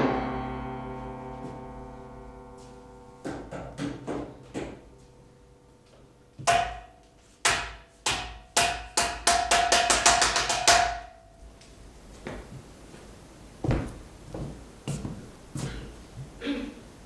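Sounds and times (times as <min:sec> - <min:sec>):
sharp ringing knocks: 0:06.4 - 0:11.3.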